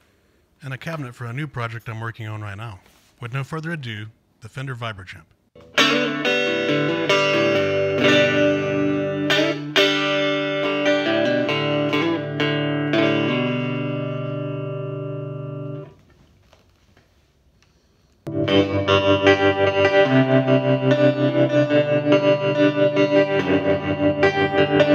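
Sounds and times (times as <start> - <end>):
pulsing tremolo guitar: 5.6 - 15.9, 18.3 - 24.9
electric guitar chords: 5.6 - 16.0, 18.3 - 24.9.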